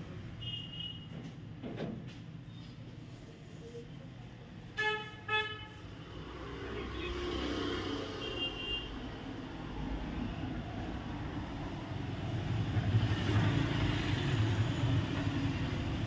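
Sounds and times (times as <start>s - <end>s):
road traffic rumble: 0.0s - 16.0s
vehicle horn beeps: 0.4s - 1.1s, 8.2s - 8.9s.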